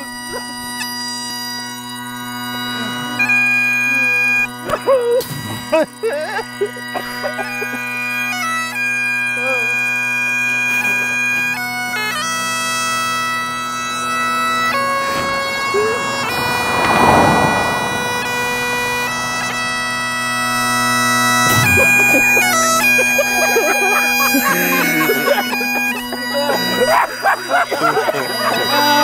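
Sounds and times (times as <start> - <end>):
bagpipes playing slow tune: 0.0 - 16.5, 18.8 - 29.0
truck passing by: 14.1 - 20.2.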